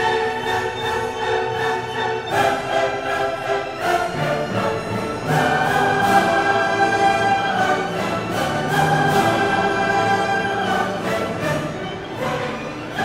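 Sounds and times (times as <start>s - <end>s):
orchestral music with held chords: 0.0s - 13.0s.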